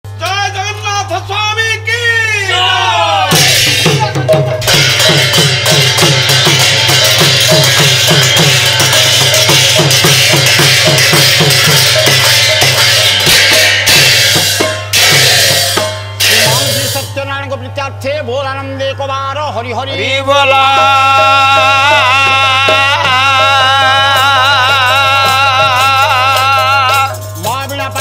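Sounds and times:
barrel drum beaten fast: 0:03.3 - 0:17.2
brass hand cymbals clashing: 0:03.3 - 0:17.3.

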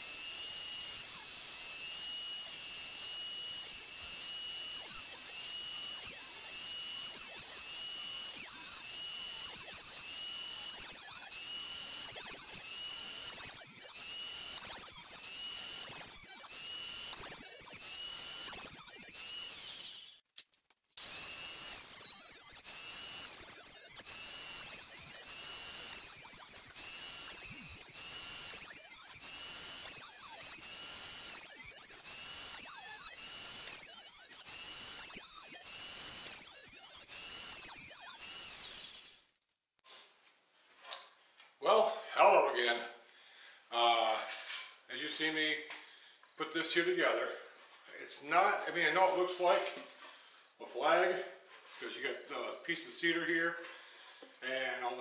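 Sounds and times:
thickness planer whining: 0:00.0 - 0:20.3, 0:21.0 - 0:39.3.

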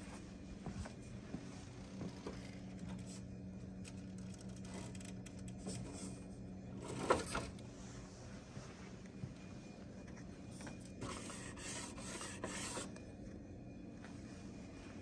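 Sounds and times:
toy car motor and gear hum: 0:02.1 - 0:07.6.

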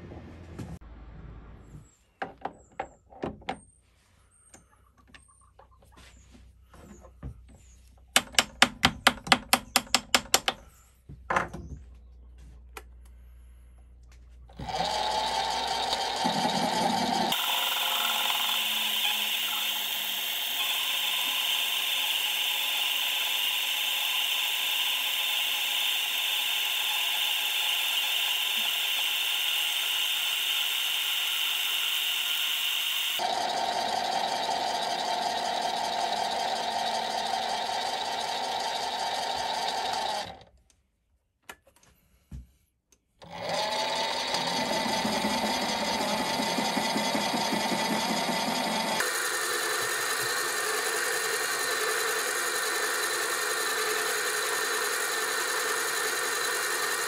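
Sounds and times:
metal lathe whining while cutting: 0:14.6 - 0:40.3, 0:43.4 - 0:57.0.

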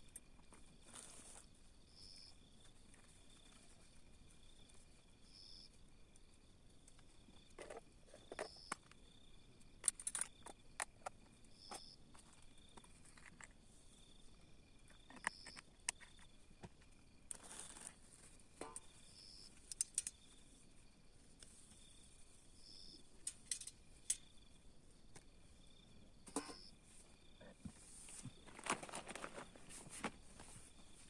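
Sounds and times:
insects chirping: 0:00.0 - 0:31.0
plastic bags crinkling: 0:28.4 - 0:30.2.

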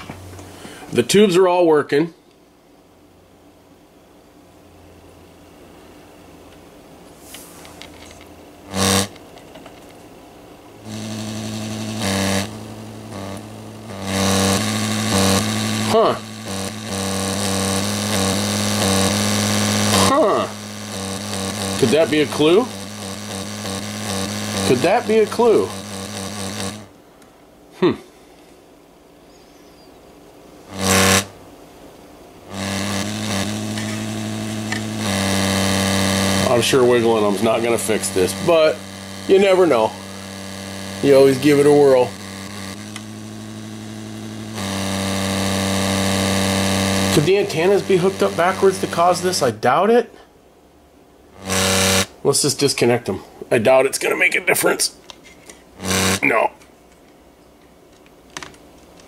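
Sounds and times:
radio speaker harsh buzz: 0:00.0 - 0:02.2, 0:07.3 - 0:09.2, 0:10.8 - 0:27.0, 0:30.6 - 0:31.4, 0:32.4 - 0:50.3, 0:51.3 - 0:56.7
low hum: 0:10.6 - 0:27.0, 0:32.4 - 0:49.6.

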